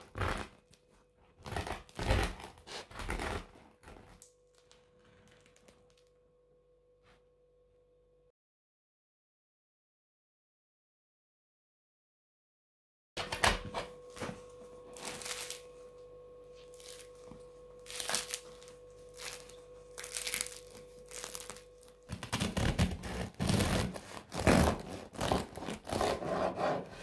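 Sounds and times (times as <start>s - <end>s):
bread crust crackling: 0.0s - 6.0s, 14.9s - 15.7s, 16.6s - 26.3s
bread knife sawing through crust: 1.4s - 4.1s, 22.2s - 27.0s.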